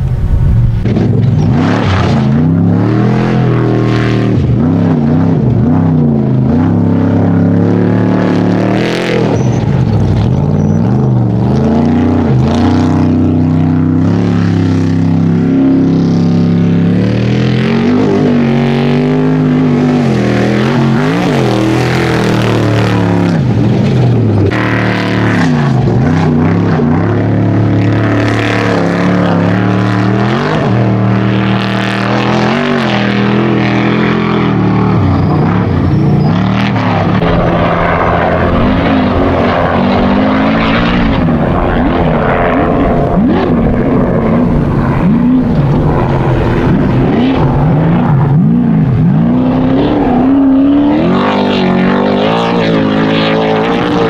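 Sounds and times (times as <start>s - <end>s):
race truck engines revving: 0.0s - 54.0s.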